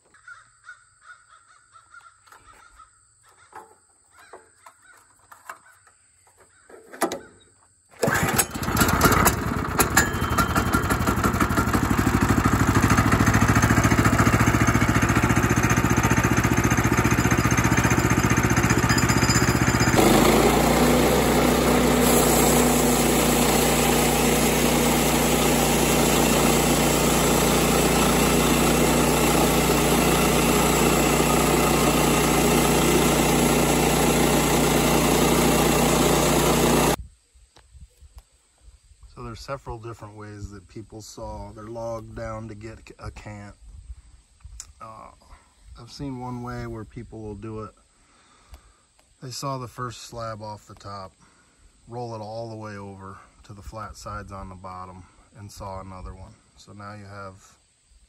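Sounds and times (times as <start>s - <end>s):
sawmill engine starting and idling: 8.0s - 37.0s.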